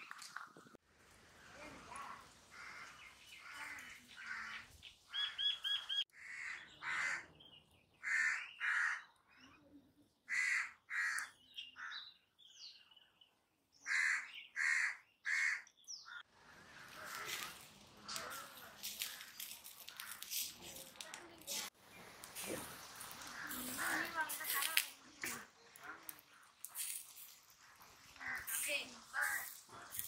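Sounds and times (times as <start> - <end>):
small birds chirping: 0.0 - 30.0
crows cawing: 2.4 - 5.3, 6.1 - 7.3, 8.0 - 9.2, 10.3 - 12.1, 13.8 - 21.0, 22.8 - 30.0.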